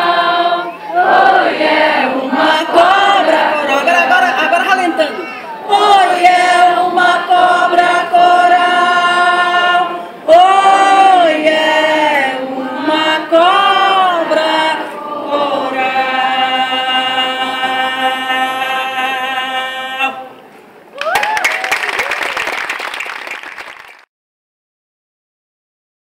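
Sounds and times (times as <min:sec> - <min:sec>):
two women singing over loudspeakers: 0:00.0 - 0:03.7, 0:05.6 - 0:20.4.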